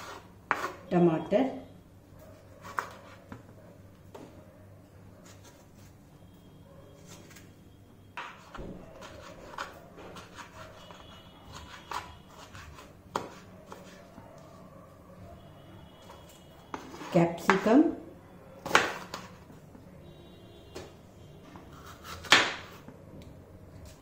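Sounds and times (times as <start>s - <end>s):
knife chopping on wooden board: 8.2s - 14.0s, 18.6s - 19.3s, 21.7s - 22.8s.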